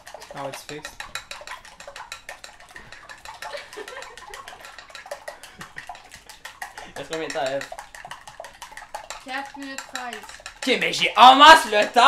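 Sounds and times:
kitchen utensils clicking and clattering: 0.0s - 12.0s.

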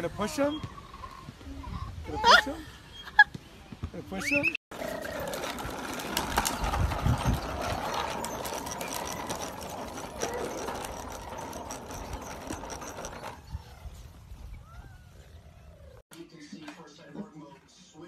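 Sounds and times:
plastic wheels rattling on concrete: 4.7s - 14.5s.

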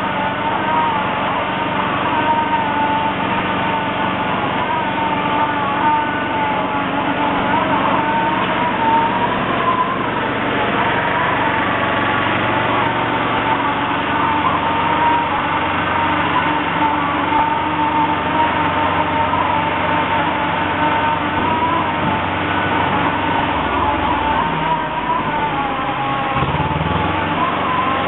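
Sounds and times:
machine motor whining: 0.0s - 28.0s.

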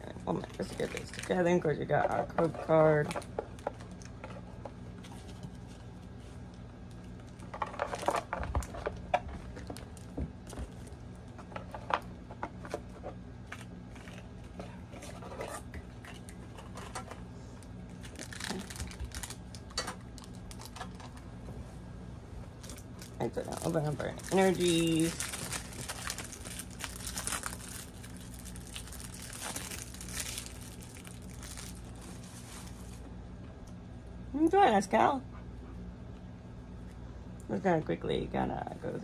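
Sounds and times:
steady low hum: 0.0s - 39.0s
paper and plastic rustling: 0.3s - 17.2s, 17.9s - 21.2s, 22.5s - 33.1s.

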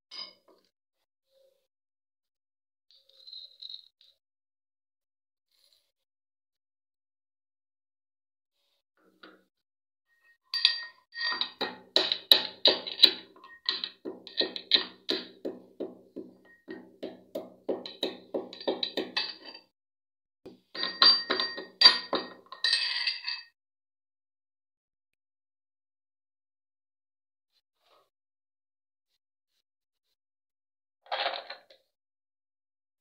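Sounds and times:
metal pestle clinking in mortar: 10.5s - 19.6s, 20.7s - 23.5s.

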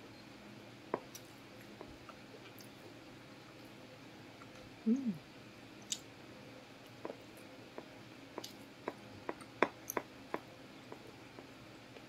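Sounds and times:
chewing with clicks and smacks: 1.0s - 2.9s, 5.8s - 6.1s, 6.8s - 12.0s
person humming mm: 4.8s - 5.2s.

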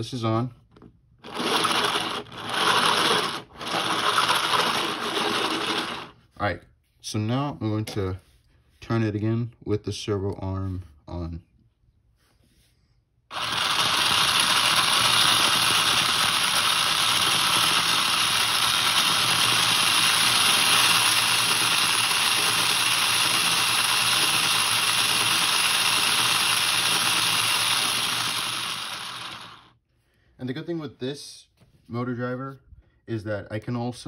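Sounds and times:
high-pitched motor whir: 13.3s - 29.7s.

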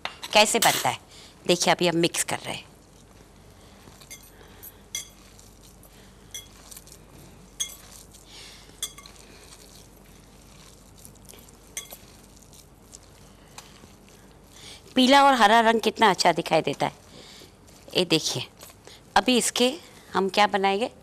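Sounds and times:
glass bowl clinking: 4.0s - 4.3s, 4.9s - 5.3s, 6.3s - 6.8s, 7.6s - 8.0s.

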